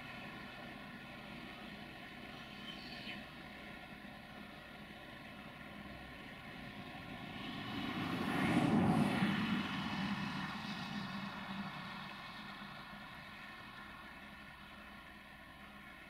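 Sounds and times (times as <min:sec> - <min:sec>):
vehicle passing by: 0:06.6 - 0:13.8.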